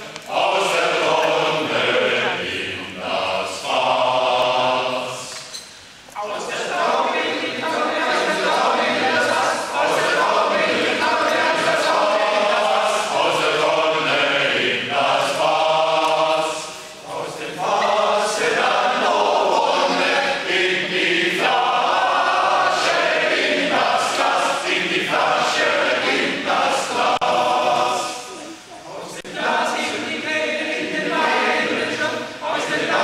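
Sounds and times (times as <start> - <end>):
choir singing a cappella: 0.0 - 5.5, 6.2 - 33.0.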